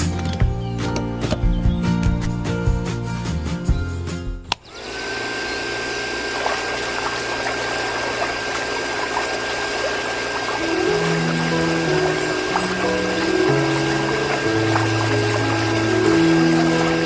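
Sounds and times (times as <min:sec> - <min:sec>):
music: 0:00.0 - 0:04.5, 0:10.6 - 0:17.0
electric water pump whining: 0:04.5 - 0:17.0
water jet splashing: 0:04.7 - 0:17.0.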